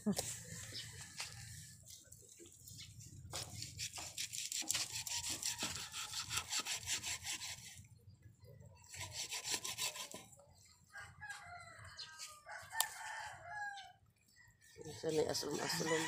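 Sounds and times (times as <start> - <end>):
knife sawing through fish: 3.4 - 7.8, 8.8 - 10.3, 14.9 - 16.0
rooster crowing: 10.9 - 14.0, 15.6 - 16.0.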